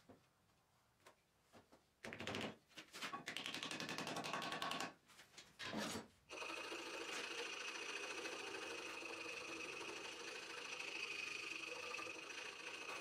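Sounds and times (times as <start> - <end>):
file scraping wood: 8.3 - 13.0.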